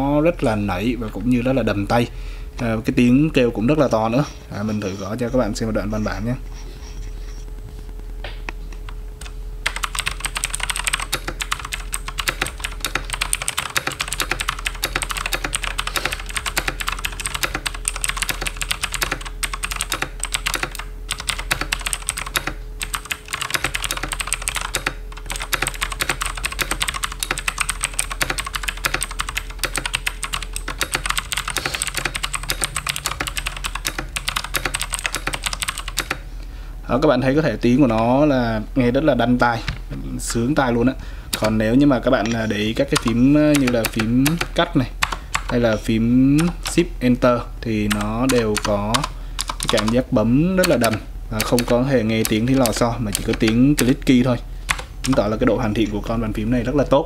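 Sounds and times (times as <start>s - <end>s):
clicky mechanical keyboard typing: 9.2s - 36.2s, 42.8s - 45.6s, 46.4s - 46.8s, 47.9s - 54.0s, 54.7s - 55.3s.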